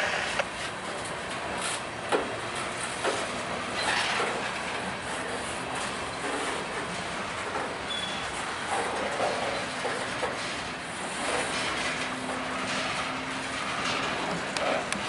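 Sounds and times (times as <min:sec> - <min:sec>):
train wheels rumbling on rail: 0:00.0 - 0:15.0
wheels clacking on rail joints: 0:00.0 - 0:15.0
high wheel squeal: 0:07.9 - 0:08.4.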